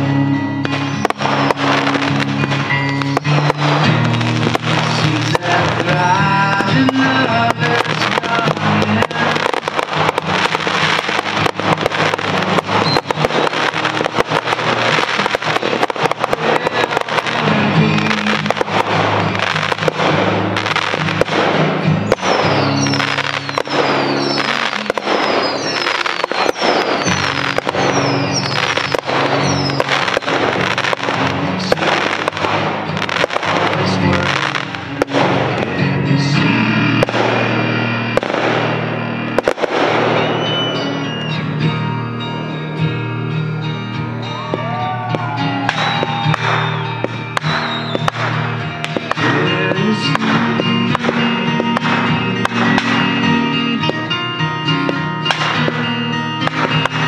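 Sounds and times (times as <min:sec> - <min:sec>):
fireworks bangs and crackles: 0:00.0 - 0:57.0
song with singing: 0:03.2 - 0:11.2, 0:15.5 - 0:19.6, 0:30.7 - 0:38.8, 0:47.8 - 0:56.6.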